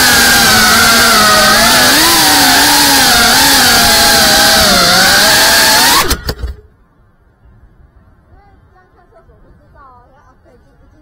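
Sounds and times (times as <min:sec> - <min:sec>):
quadcopter motors whining: 0:00.0 - 0:06.6.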